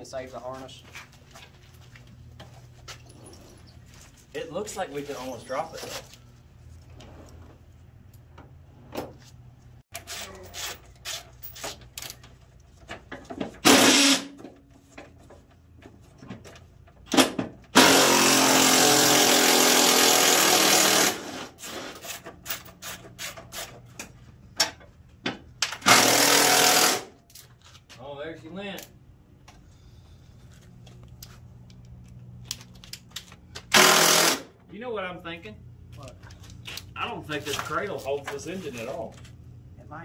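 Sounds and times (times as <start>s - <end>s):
power tool running in bursts: 13.7s - 14.3s, 17.8s - 21.9s, 25.9s - 27.1s, 33.7s - 34.5s.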